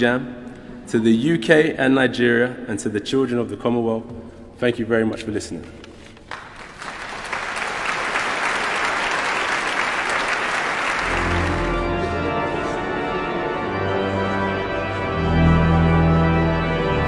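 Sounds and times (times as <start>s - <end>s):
audience applauding: 6.2s - 12.2s
organ music with low notes: 8.0s - 17.0s.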